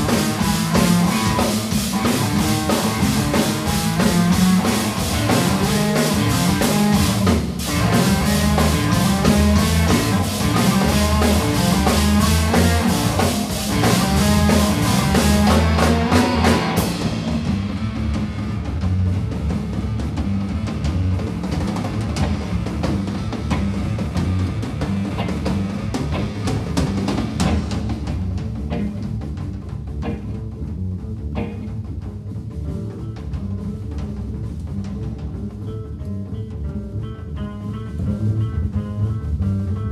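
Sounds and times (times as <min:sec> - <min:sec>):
live band playing: 0:00.0 - 0:39.9.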